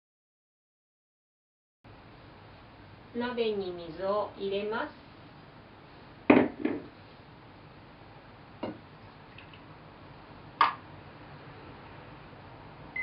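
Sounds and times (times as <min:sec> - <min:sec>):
cookware knocking on table: 0:06.3 - 0:06.9.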